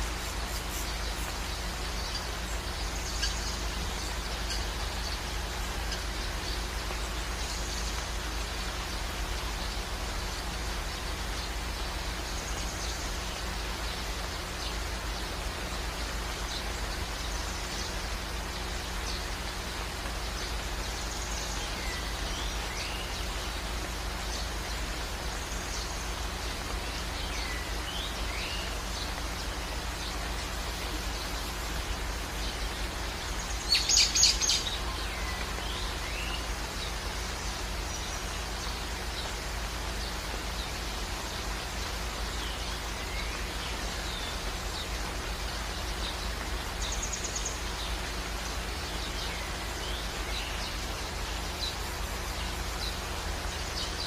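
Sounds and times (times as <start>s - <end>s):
birds chirping: 0.0s - 54.0s
steady rain: 0.0s - 54.0s.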